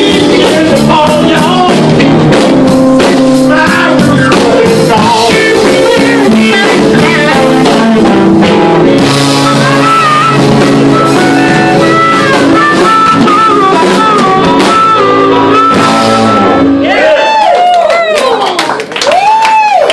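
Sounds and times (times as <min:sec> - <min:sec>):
drum kit: 0:00.0 - 0:17.8
electric guitar: 0:00.0 - 0:18.5.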